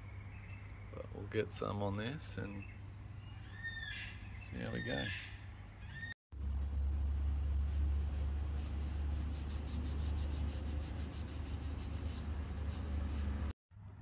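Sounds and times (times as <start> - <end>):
steady low rumble: 6.3 - 13.5.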